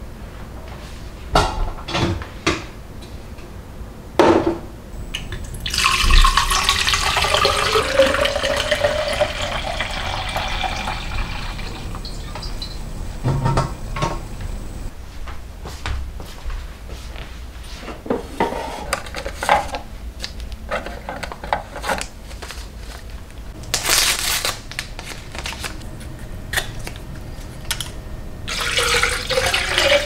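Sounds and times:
water filling a container: 0:05.1 - 0:14.6, 0:28.5 - 0:30.0
kitchenware knocks: 0:13.2 - 0:14.4.

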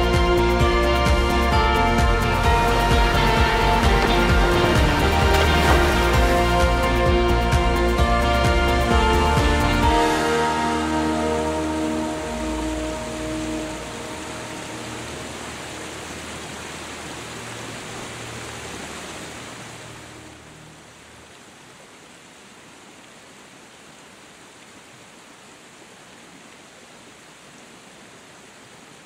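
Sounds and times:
background music: 0:00.0 - 0:21.0
waterfall rushing: 0:00.1 - 0:29.0.

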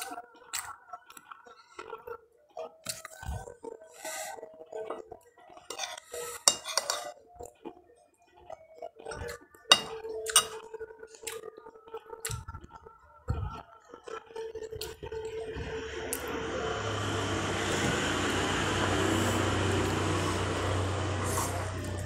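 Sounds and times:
dishes and cutlery clinking: 0:04.9 - 0:07.2, 0:09.0 - 0:10.8.

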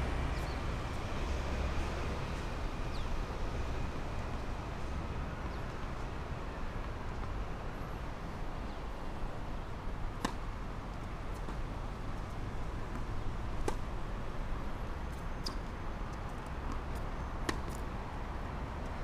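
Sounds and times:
tennis ball struck by racket: 0:10.2 - 0:10.6, 0:17.4 - 0:17.8.

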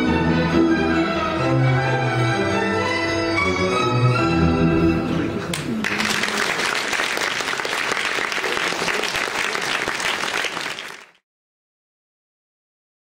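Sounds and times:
orchestral ballet music: 0:00.0 - 0:05.8
audience applause: 0:05.5 - 0:11.2.

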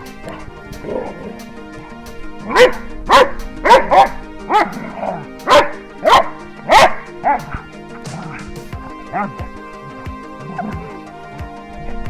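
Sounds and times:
background music: 0:00.0 - 0:12.0
dog barking: 0:02.5 - 0:07.6, 0:09.1 - 0:09.5.

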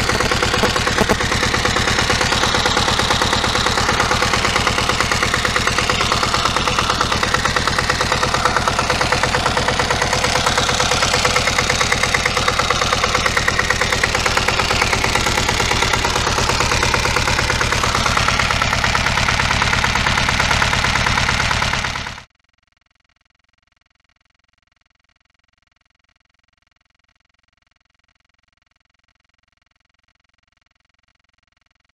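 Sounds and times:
diesel engine idling: 0:00.0 - 0:22.2.

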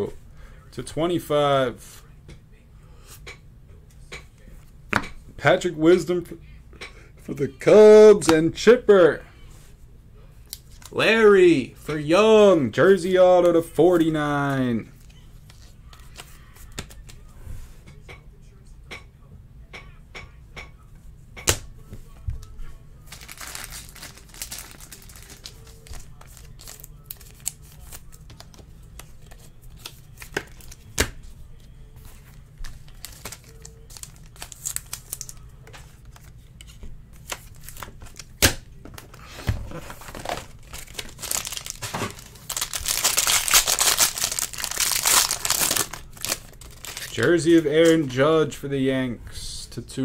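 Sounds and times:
cards and plastic holders handled: 0:12.8 - 0:17.3, 0:23.1 - 0:48.2
foil wrapper crinkling and tearing: 0:23.1 - 0:28.5, 0:32.6 - 0:35.4, 0:39.7 - 0:47.9.

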